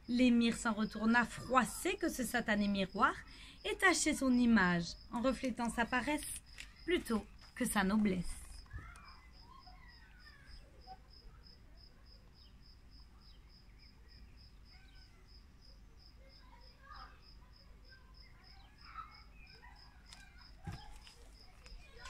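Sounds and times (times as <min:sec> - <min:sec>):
cricket chirping: 0:00.0 - 0:22.0
faint bird chirps: 0:08.1 - 0:22.0.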